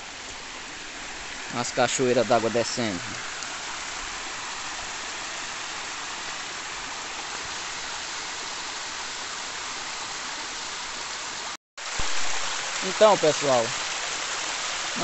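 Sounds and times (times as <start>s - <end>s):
water rushing down dirt road: 0.0s - 15.0s.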